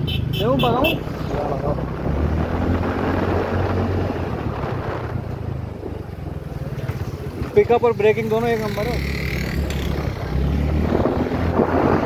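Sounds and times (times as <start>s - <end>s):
wind rushing over microphone: 1.0s - 7.6s, 9.1s - 12.0s
scooter engine accelerating: 6.8s - 12.0s.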